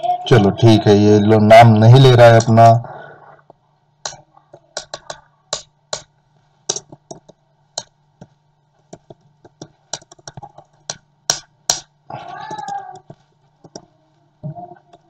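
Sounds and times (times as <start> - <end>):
faint steady hum: 0.0 - 15.0
computer keyboard typing: 8.9 - 11.8.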